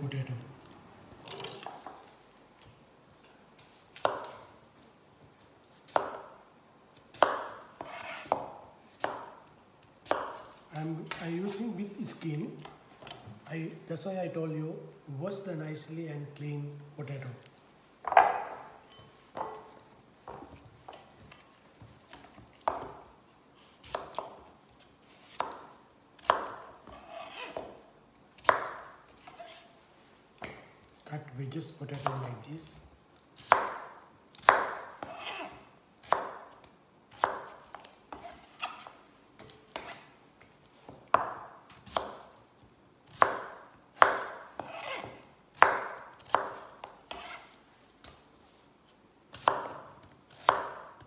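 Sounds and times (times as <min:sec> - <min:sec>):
knife cutting on plastic board: 0:46.3 - 0:47.6.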